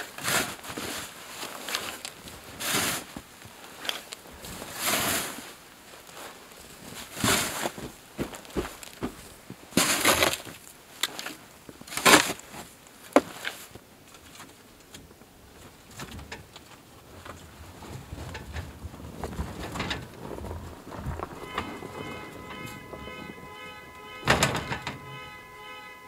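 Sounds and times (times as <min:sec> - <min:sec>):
shovel scraping snow: 0:04.7 - 0:05.4.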